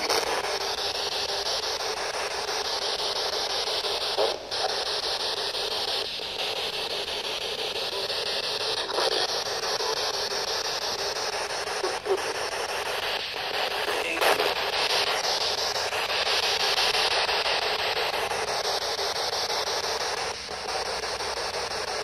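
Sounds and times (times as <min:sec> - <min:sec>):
radio static hiss: 0:00.0 - 0:22.0.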